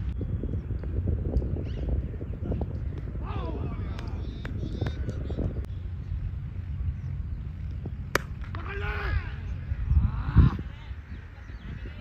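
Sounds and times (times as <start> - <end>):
wind buffeting microphone: 0.0 - 12.0
bird chirp: 4.1 - 8.1.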